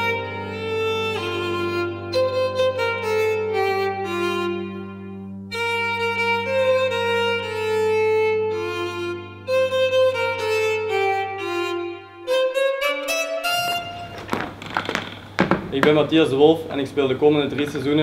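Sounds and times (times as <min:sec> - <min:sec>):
solo violin slow melody: 0:00.0 - 0:14.4.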